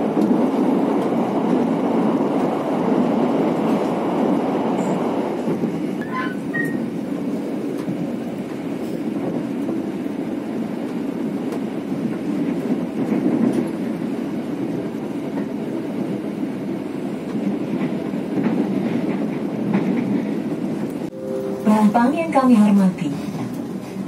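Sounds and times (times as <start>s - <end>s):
passenger train rumble: 0.0s - 24.0s.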